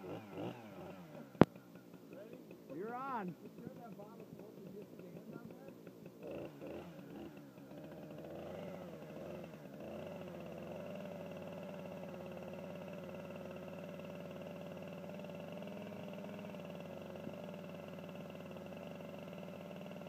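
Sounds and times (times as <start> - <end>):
chainsaw engine idling: 0.0 - 20.0.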